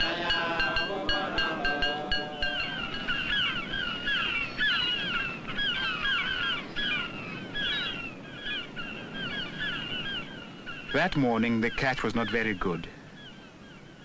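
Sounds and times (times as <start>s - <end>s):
flute playing wavering melody: 0.0s - 4.9s.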